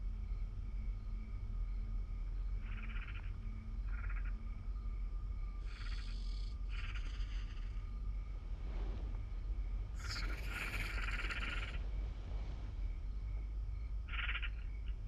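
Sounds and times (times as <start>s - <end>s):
low steady rumbling hum: 0.0s - 15.0s
chirring animal calls: 2.6s - 4.4s, 5.7s - 7.9s, 10.0s - 11.8s, 14.1s - 15.0s.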